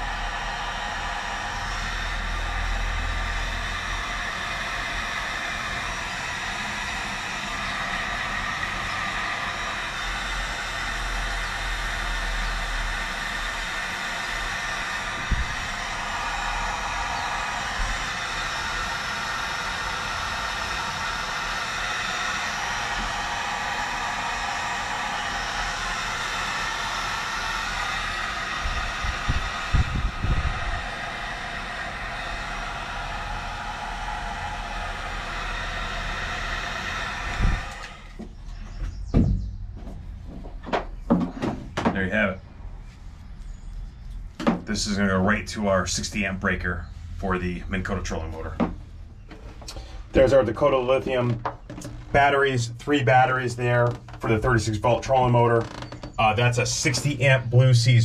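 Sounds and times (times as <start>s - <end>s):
heat gun blowing: 0.0s - 38.6s, 48.6s - 57.4s
low thumps: 38.2s - 42.2s.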